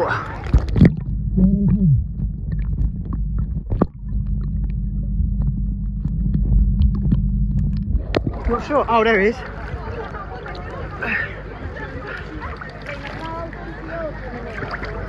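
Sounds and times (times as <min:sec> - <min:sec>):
muffled underwater rumble: 0:00.0 - 0:15.0
steady low hum: 0:00.0 - 0:15.0
muffled voice-like tone: 0:01.4 - 0:02.0.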